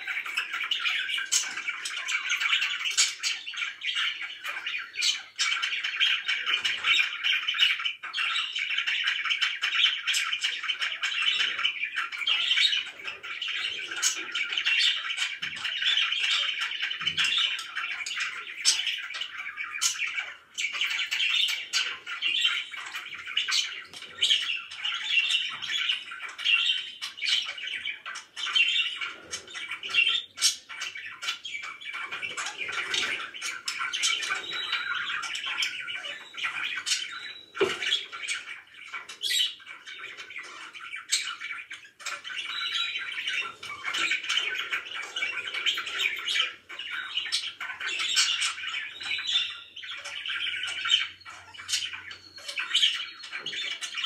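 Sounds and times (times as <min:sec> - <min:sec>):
budgerigars chattering and warbling: 0:00.0 - 0:54.0
sharp chirps and squawks: 0:00.0 - 0:54.0.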